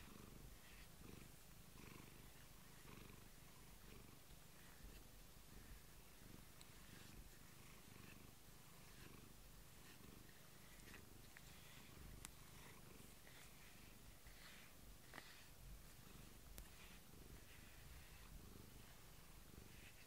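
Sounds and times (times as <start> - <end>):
brush strokes on fur: 0.0 - 20.0
cat purring: 0.0 - 20.0.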